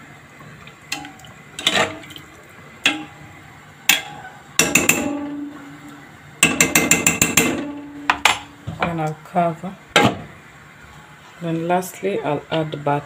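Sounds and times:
water sloshing in a pot: 0.1s - 6.0s
spoon clinking against pot: 3.9s - 5.4s, 6.4s - 8.5s.

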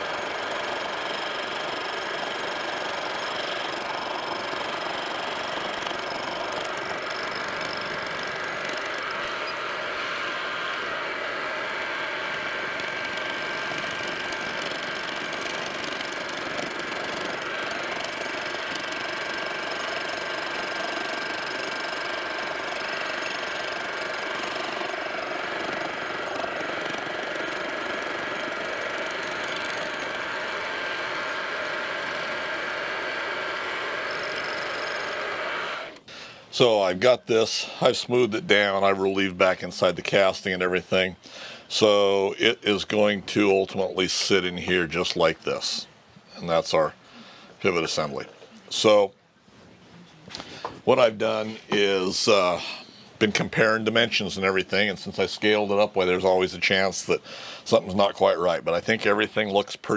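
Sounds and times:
milling machine running: 0.0s - 36.8s.

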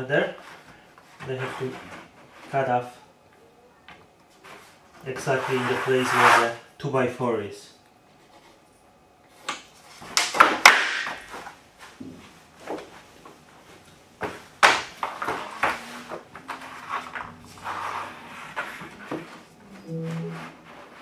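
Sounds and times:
flooring planks knocking and clattering: 10.1s - 11.4s, 14.2s - 17.3s.

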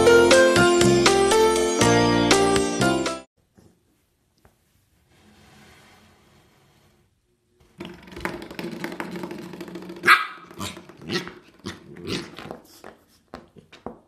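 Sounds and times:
puppy growling: 9.8s - 12.7s
puppy barking: 10.0s - 11.8s.

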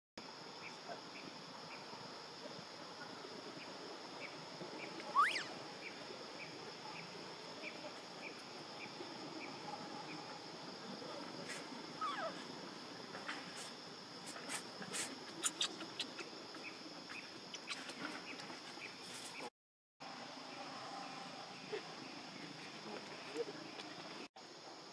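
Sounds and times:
insect drone with chirps: 0.2s - 24.9s
baby monkey crying: 5.1s - 5.6s, 12.0s - 12.4s, 15.4s - 16.2s.

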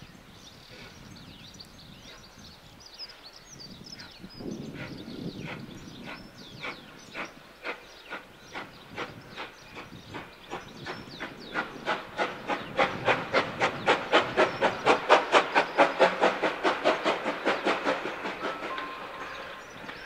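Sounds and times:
steam locomotive exhaust chuffs: 4.7s - 20.0s.

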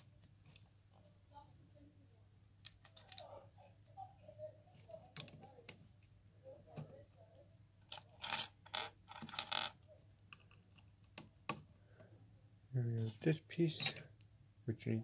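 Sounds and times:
plastic toy bricks clicking and rattling: 7.9s - 11.3s.

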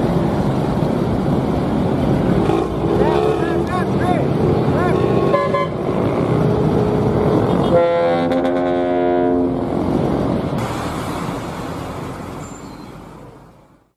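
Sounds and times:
traffic and engine noise: 0.0s - 13.9s
bus air horn chord: 7.6s - 9.6s.

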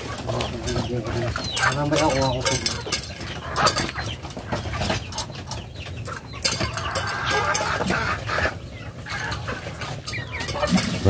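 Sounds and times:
chickens clucking: 0.0s - 11.0s
sharp knocks and clatter: 0.0s - 11.0s.

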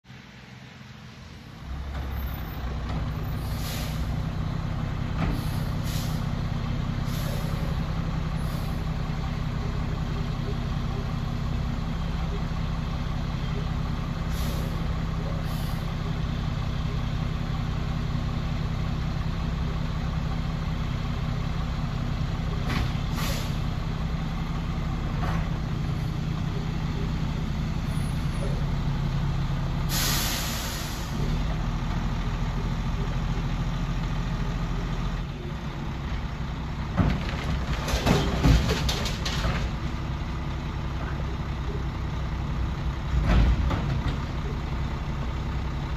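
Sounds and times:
garbage truck engine running: 0.1s - 45.9s
air brake hiss: 3.4s - 4.1s, 5.3s - 6.3s, 7.1s - 7.7s, 14.3s - 14.8s, 23.1s - 23.6s, 29.9s - 31.2s.

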